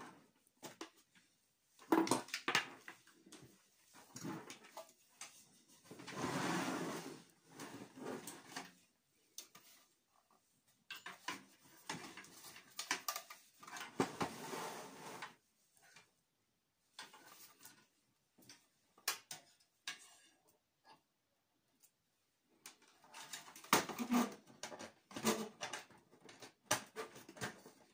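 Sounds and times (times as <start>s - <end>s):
knocks and clicks of handled metal: 10.9s - 14.0s.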